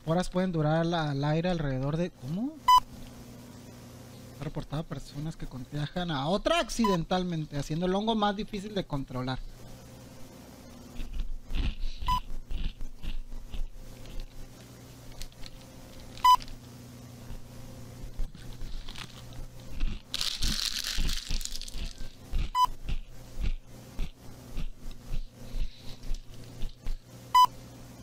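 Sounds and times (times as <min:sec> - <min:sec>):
crinkling rustle: 0:15.1 - 0:16.7, 0:18.2 - 0:22.2.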